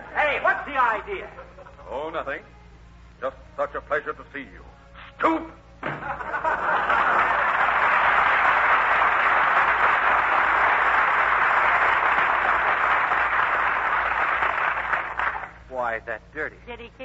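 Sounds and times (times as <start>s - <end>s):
audience laughing: 5.8s - 8.4s
audience clapping: 6.6s - 15.6s.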